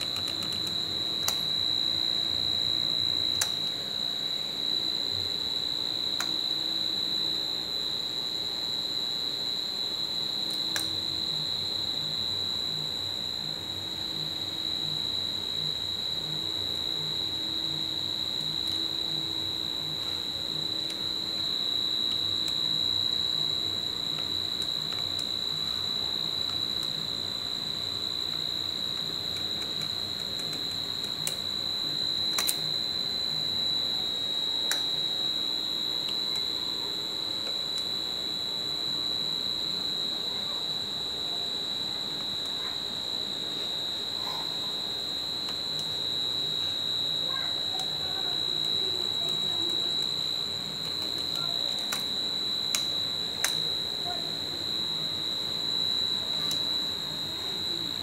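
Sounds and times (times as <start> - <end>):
sharp clicks: 0.0 - 1.5, 32.3 - 32.6.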